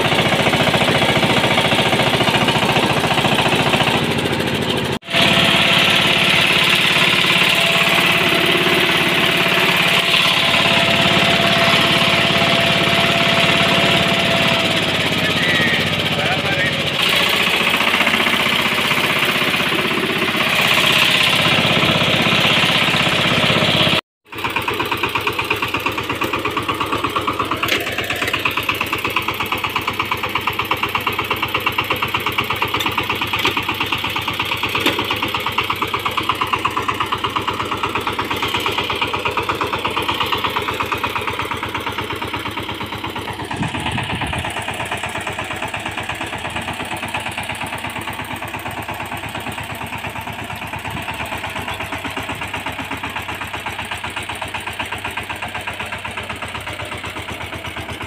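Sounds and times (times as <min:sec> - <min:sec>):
diesel engine chugging: 0:00.0 - 0:58.0.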